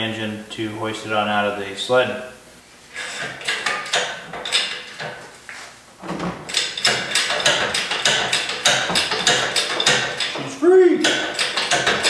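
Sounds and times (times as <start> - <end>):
metal knocks and clicks: 3.2 - 5.2, 6.0 - 12.0.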